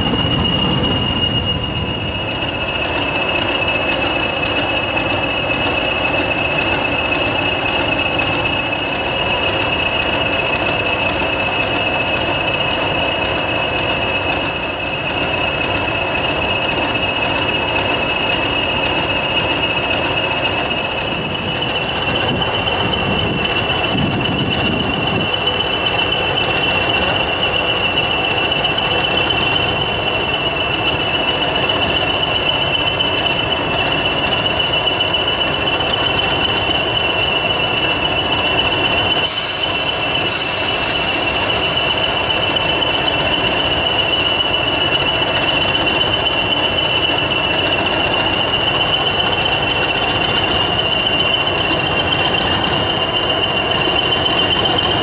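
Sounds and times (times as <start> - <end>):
diesel locomotive engines: 0.0 - 55.0
high-pitched whistle: 0.0 - 55.0.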